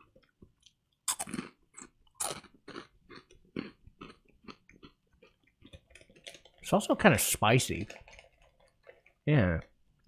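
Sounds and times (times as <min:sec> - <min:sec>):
rice cracker crunching: 0:00.6 - 0:06.6.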